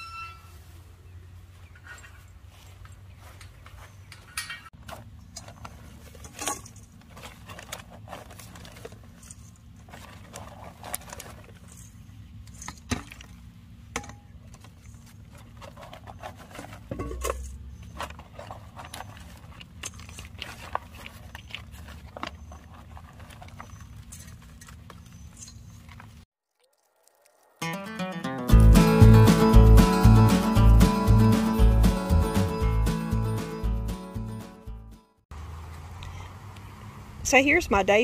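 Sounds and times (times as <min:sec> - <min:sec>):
soil pattering: 0:01.8 - 0:28.5
plastic bag rustling: 0:04.9 - 0:12.7
metal bowl scraping soil: 0:04.9 - 0:12.9, 0:14.6 - 0:26.1.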